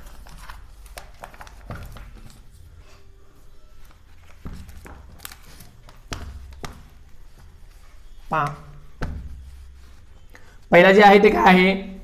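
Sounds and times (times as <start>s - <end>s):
paper page rustling: 0.0s - 8.3s.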